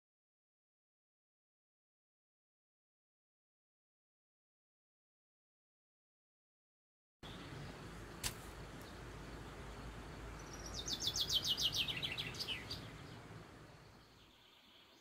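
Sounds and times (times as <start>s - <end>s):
songbird singing: 7.2s - 15.0s
sharp click: 8.2s - 8.5s.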